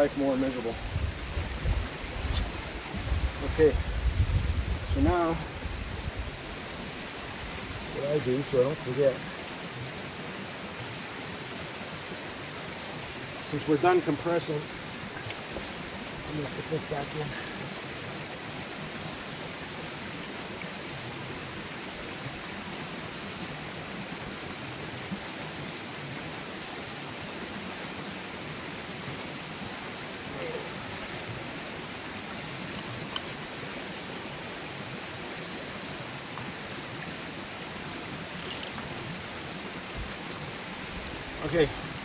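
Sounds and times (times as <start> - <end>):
rushing background hiss: 0.0 - 42.0
faint clicks of threading fitting: 32.8 - 33.3, 38.4 - 38.8
wrench clicking: 38.4 - 38.8.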